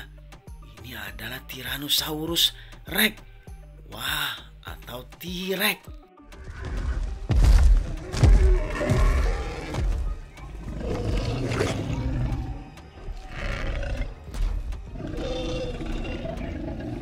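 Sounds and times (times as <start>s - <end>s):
heavy low thuds: 6.4s - 10.3s
dinosaur roars: 8.0s - 9.9s, 10.6s - 14.2s, 14.9s - 17.0s.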